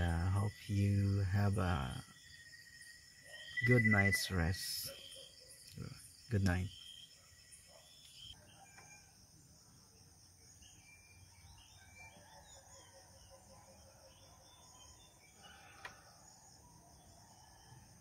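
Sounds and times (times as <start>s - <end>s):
high insect drone: 0.0s - 11.8s
bird chirps: 0.0s - 18.0s.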